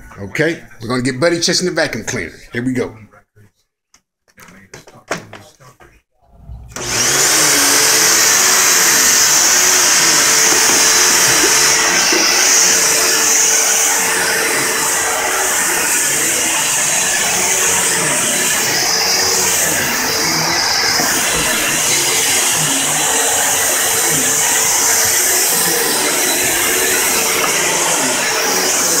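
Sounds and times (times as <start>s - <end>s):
knocks: 4.7s - 5.5s
vacuum cleaner motor running: 6.7s - 29.0s.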